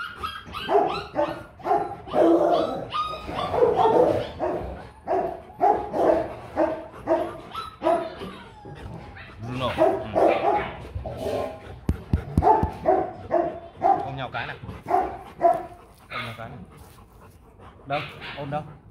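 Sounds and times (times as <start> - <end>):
dog barking: 0.0 - 8.4, 9.4 - 11.5, 12.2 - 16.6.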